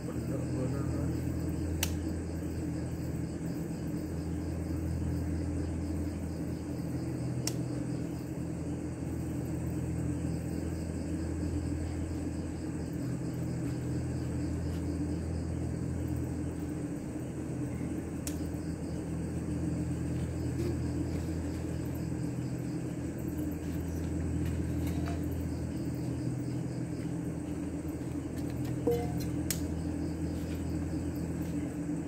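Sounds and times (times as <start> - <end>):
crickets chirping: 0.0 - 32.0
low machine hum: 0.0 - 32.0
sharp click: 1.8 - 2.0, 7.4 - 7.6, 18.2 - 18.4.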